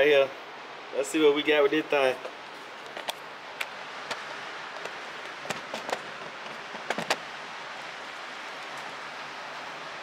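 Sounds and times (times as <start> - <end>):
sharp clicks and knocks: 2.2 - 7.3.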